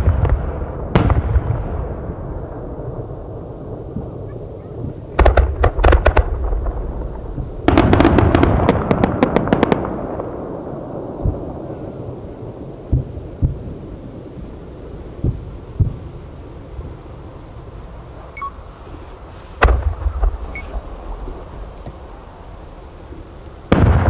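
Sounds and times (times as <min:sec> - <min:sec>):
fireworks cracking: 0:00.0 - 0:24.0
fireworks rumble: 0:00.0 - 0:24.0
distant thumps: 0:19.6 - 0:20.8.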